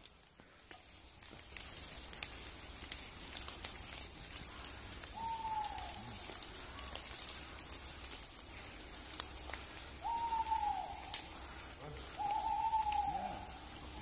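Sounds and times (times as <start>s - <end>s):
owl hooting: 4.4s - 7.6s, 9.8s - 14.0s.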